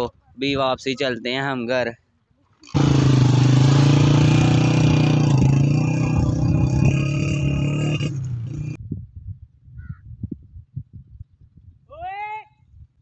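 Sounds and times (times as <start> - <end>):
small motorcycle engine running: 2.7 - 8.8.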